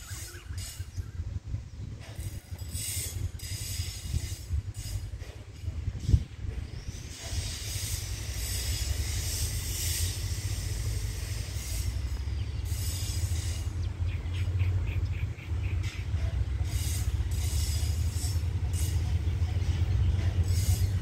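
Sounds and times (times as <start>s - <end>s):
distant locomotive rumbling: 0.0s - 21.0s
steady high hiss: 6.8s - 13.8s.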